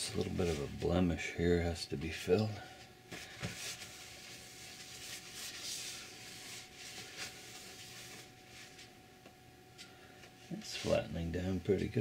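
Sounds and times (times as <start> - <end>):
cloth rubbing on wood: 3.6 - 8.9.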